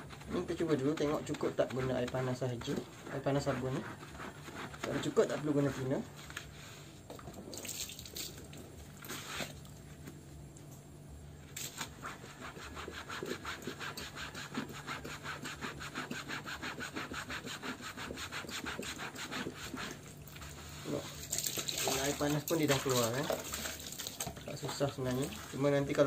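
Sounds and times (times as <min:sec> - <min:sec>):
scrubbing fabric in soapy water: 0:00.0 - 0:10.0, 0:11.6 - 0:26.0.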